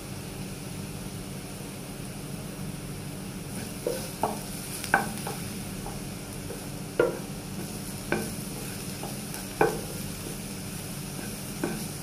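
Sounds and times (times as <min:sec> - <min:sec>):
garlic frying in a pan: 0:00.0 - 0:12.0
steady low hum: 0:00.0 - 0:12.0
spatula knocking and scraping pan: 0:03.5 - 0:12.0.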